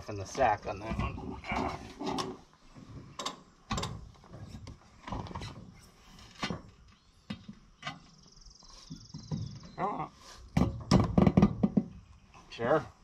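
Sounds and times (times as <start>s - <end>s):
metal knocks and clanks: 0.4s - 8.1s, 10.5s - 12.0s.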